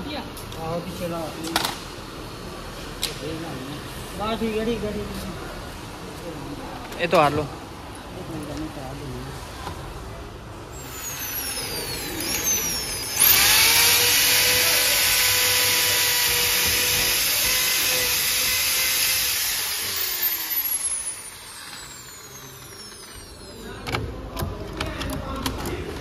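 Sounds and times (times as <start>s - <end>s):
electric drill whining: 10.8s - 24.0s.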